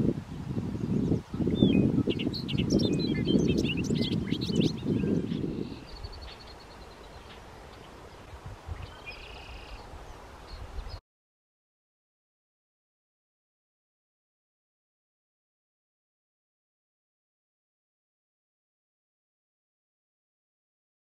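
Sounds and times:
wind rumble on microphone: 0:00.0 - 0:11.0
bird singing: 0:00.8 - 0:11.0.

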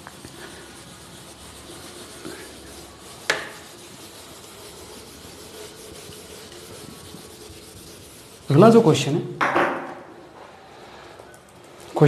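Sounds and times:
duster rubbing on whiteboard: 0:00.0 - 0:09.1.

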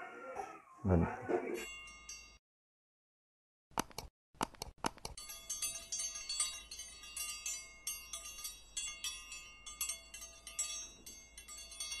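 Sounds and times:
tinkling metallic chimes: 0:01.6 - 0:02.4, 0:05.2 - 0:12.0.

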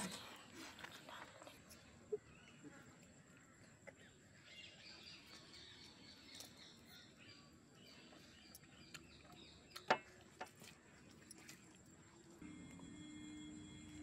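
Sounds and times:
faint birds chirping: 0:00.0 - 0:14.0.

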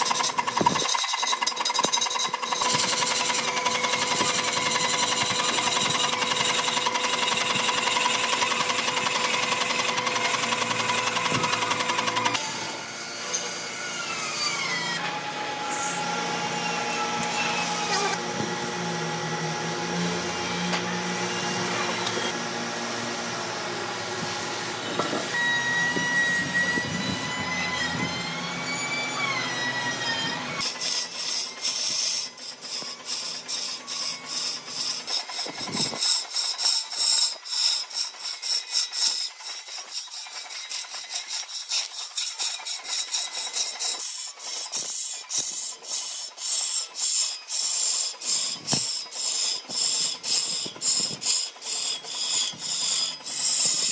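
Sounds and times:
power tool running: 0:00.0 - 0:53.9
hand sanding wood: 0:17.6 - 0:25.4.

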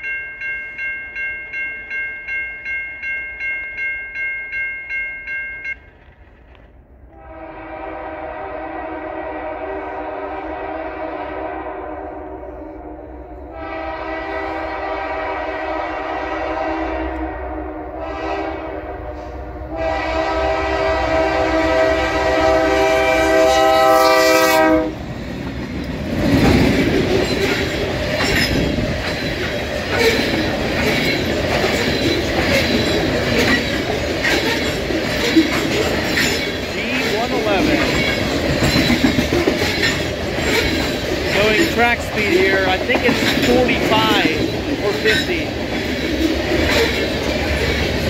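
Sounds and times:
locomotive air horn blasts: 0:07.2 - 0:25.0
train wheels clattering over rail joints: 0:25.1 - 0:48.0.

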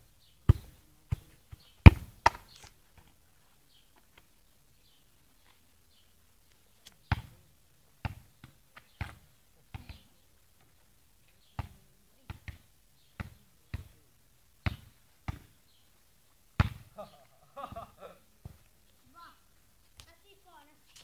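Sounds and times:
football kicked and bounced: 0:00.5 - 0:03.1, 0:07.1 - 0:07.4, 0:08.0 - 0:10.1, 0:11.6 - 0:14.0, 0:14.6 - 0:15.6, 0:16.6 - 0:16.9.

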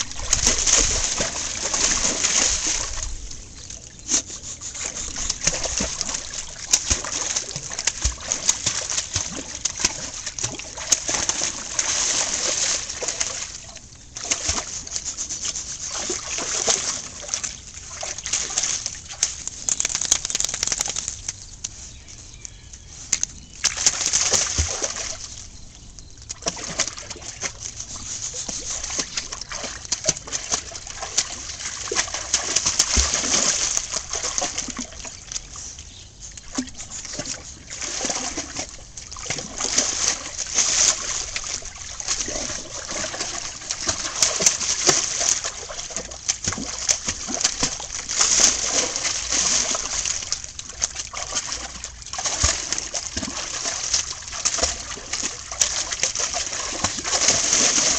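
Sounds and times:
dog splashing in water: 0:00.0 - 0:21.3, 0:23.6 - 0:25.4, 0:26.3 - 0:35.7, 0:36.4 - 0:57.9.

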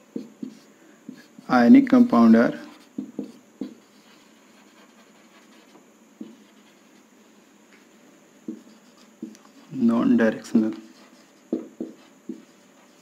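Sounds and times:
marker scratching on whiteboard: 0:00.1 - 0:01.4, 0:02.5 - 0:07.0, 0:08.5 - 0:09.9, 0:10.6 - 0:13.0.

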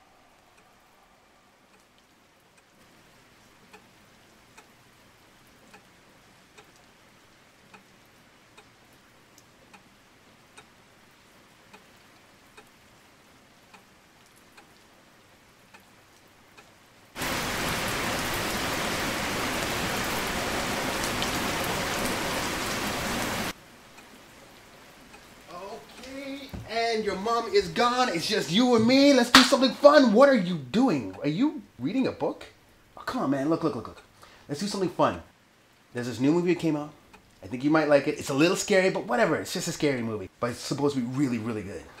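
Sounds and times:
loud rain-like hiss: 0:00.0 - 0:08.2, 0:16.9 - 0:42.0
clock ticking faintly: 0:01.6 - 0:15.0, 0:15.6 - 0:16.9, 0:23.8 - 0:29.8, 0:30.6 - 0:31.8, 0:36.5 - 0:37.4.

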